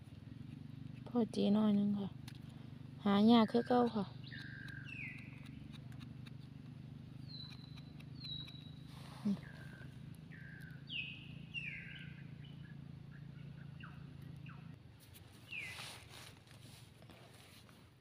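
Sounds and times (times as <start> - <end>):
steady low hum: 0.0 - 18.0
bird whistling downward notes: 4.2 - 5.4, 9.4 - 14.6, 15.5 - 16.0.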